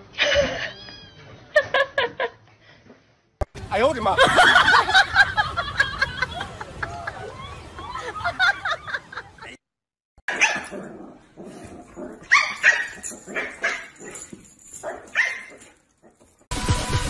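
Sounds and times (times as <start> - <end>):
dogs barking: 10.3 - 16.3.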